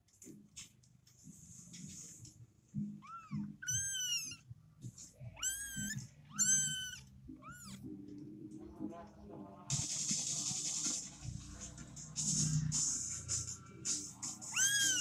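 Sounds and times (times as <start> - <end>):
kittens meowing: 2.9 - 4.5, 5.3 - 7.9, 14.4 - 15.0.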